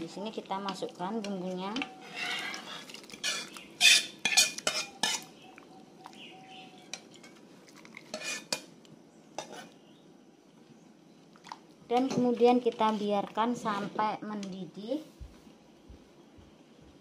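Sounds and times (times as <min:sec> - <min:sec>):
utensil clinking and scraping pot: 0:00.6 - 0:05.4, 0:06.7 - 0:08.7, 0:09.4 - 0:09.8.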